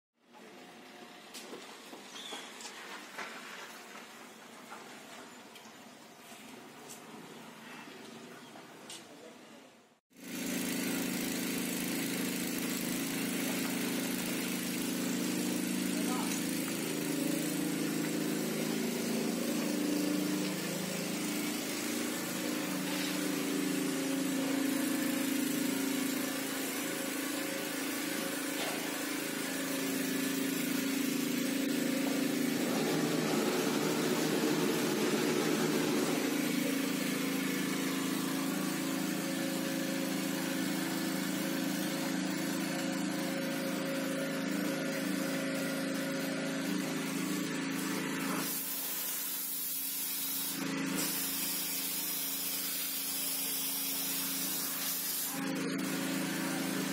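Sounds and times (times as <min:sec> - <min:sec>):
motor humming: 0:10.2 - 0:48.7.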